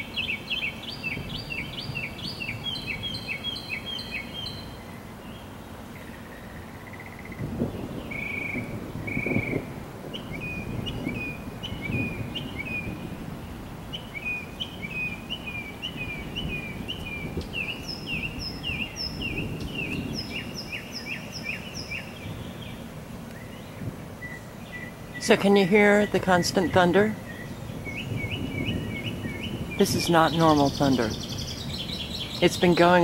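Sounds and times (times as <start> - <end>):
songbirds chirping: 0.0 - 33.0
distant thunder rumbling: 6.8 - 33.0.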